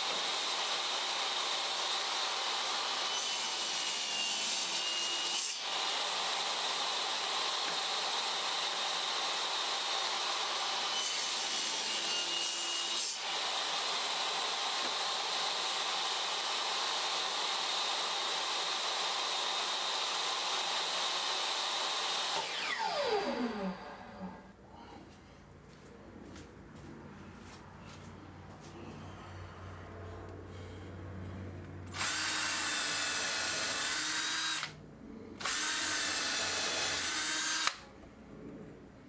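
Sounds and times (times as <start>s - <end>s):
table saw whining: 0.0s - 24.5s.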